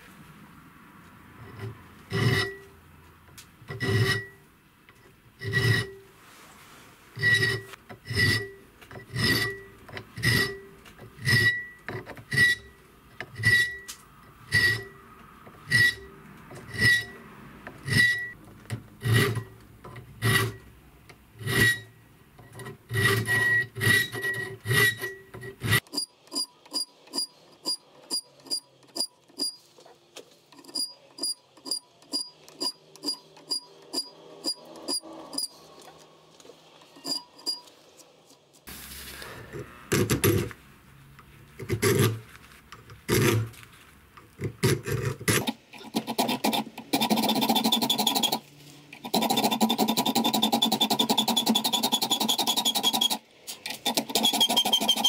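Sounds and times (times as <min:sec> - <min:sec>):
file rasping on ringing steel: 0:01.4 - 0:02.7, 0:03.7 - 0:04.4, 0:05.4 - 0:06.1, 0:07.2 - 0:15.0, 0:15.6 - 0:17.2, 0:17.8 - 0:18.4, 0:19.0 - 0:19.6, 0:20.2 - 0:20.6, 0:21.4 - 0:22.0, 0:22.8 - 0:29.6, 0:45.3 - 0:48.4, 0:49.0 - 0:53.2.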